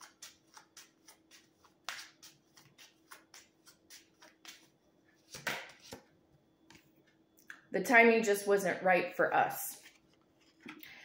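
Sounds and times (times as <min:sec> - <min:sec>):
cards being shuffled: 0:00.0 - 0:06.0.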